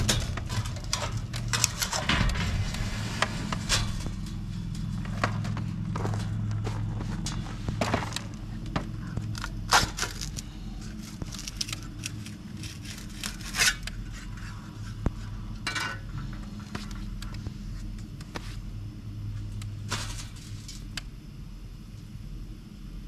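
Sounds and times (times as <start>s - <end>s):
metal parts clinking and rattling: 0.0s - 6.3s
low machine hum: 0.0s - 23.0s.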